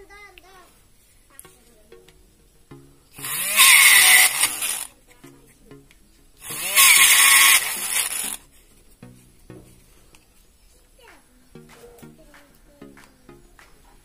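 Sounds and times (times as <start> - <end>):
faint background music: 0.0 - 14.0
drill bit grinding into plastic: 3.2 - 4.9, 6.4 - 8.4
mini drill motor whining: 3.2 - 4.9, 6.4 - 8.4.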